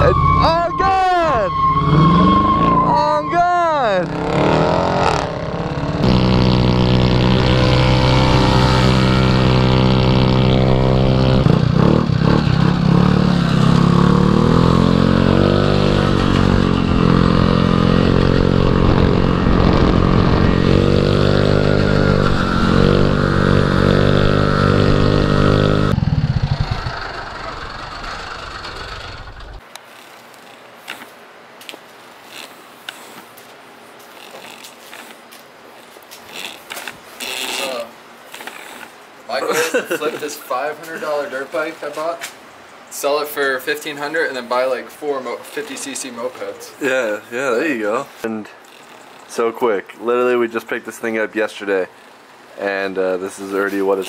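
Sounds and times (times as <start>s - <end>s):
dirt bike engine revving: 0.0s - 29.6s.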